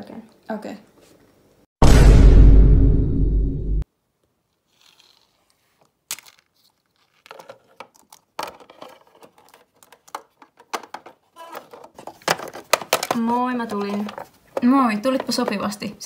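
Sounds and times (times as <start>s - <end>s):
plastic toys clicking and rustling: 6.1s - 16.0s.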